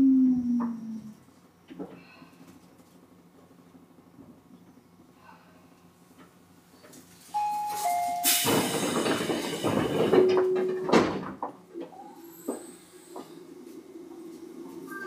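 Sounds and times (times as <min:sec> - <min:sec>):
two-note train door chime: 0:07.3 - 0:08.8, 0:10.0 - 0:11.1
rush of air from sliding doors: 0:08.2 - 0:10.2, 0:12.2 - 0:14.9.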